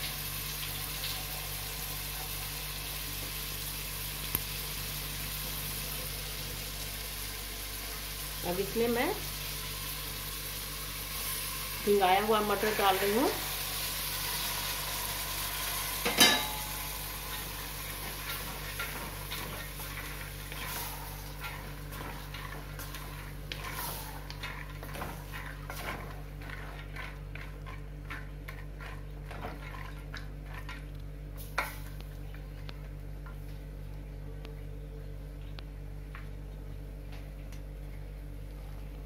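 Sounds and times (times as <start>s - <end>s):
faint sizzle: 0.0s - 29.3s
wooden spatula scraping pot: 17.9s - 31.9s.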